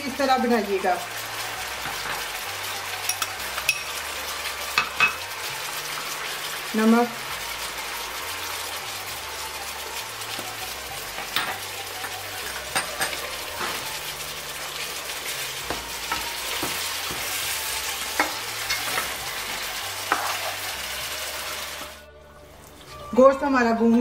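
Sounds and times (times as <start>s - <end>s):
meat sizzling in hot oil: 0.0s - 22.1s
spatula scraping a pan: 16.1s - 20.7s.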